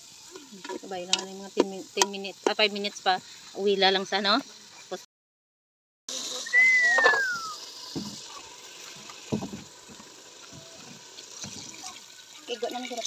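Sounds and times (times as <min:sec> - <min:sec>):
cauldron hissing and bubbling: 0:06.1 - 0:12.5
short high descending call: 0:06.4 - 0:07.6.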